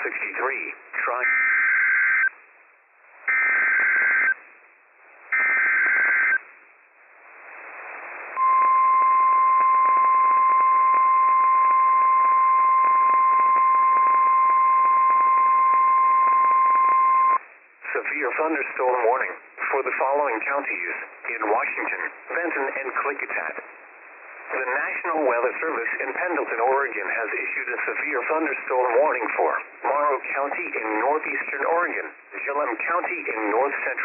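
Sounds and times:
radio hiss: 0:00.0 - 0:01.4, 0:05.0 - 0:06.4, 0:07.2 - 0:08.6, 0:17.8 - 0:34.0.

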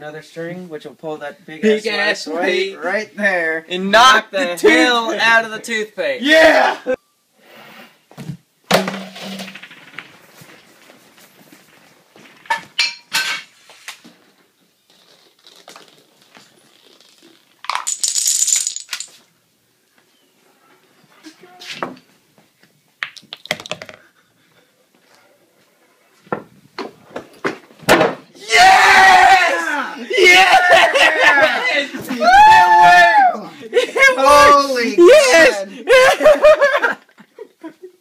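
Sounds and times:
objects clattering: 0:08.7 - 0:13.6, 0:17.7 - 0:19.2
balls and dominoes clicking and rattling: 0:09.3 - 0:10.3, 0:14.9 - 0:19.2, 0:23.0 - 0:24.0.

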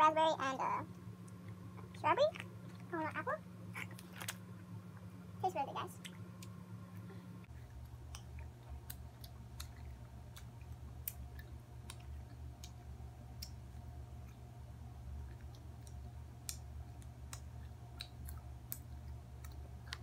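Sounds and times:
low hum: 0:00.0 - 0:20.0
mouth chewing clicks and smacks: 0:07.7 - 0:14.4, 0:15.2 - 0:20.0.

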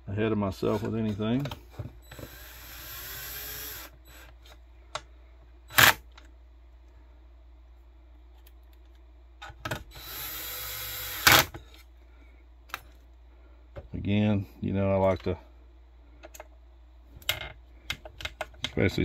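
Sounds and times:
cordless drill driving screws: 0:02.1 - 0:04.3, 0:09.9 - 0:11.5.

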